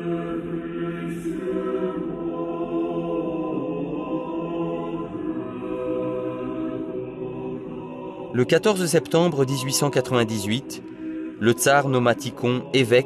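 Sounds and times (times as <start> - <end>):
choir singing a slow chant: 0.0 - 13.0.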